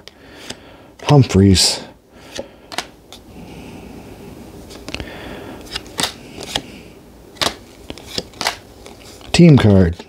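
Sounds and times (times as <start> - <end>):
cards tapping and flicking: 2.2 - 3.2, 4.7 - 6.8, 7.4 - 10.0.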